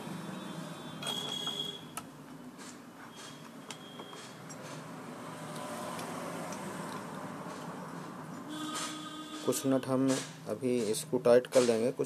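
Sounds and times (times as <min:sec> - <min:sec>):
buzzer beeping: 0:00.3 - 0:02.0, 0:03.1 - 0:04.2, 0:08.5 - 0:09.6.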